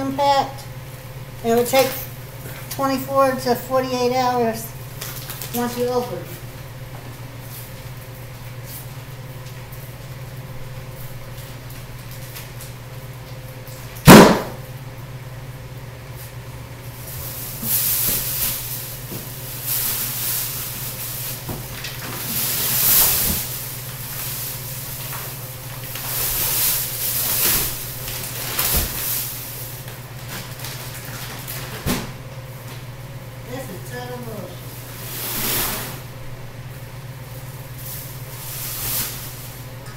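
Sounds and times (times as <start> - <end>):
steady low hum: 0.0 - 39.9
plastic packaging crinkling: 5.0 - 5.6, 17.2 - 31.8
sharp bang: 14.0 - 14.6.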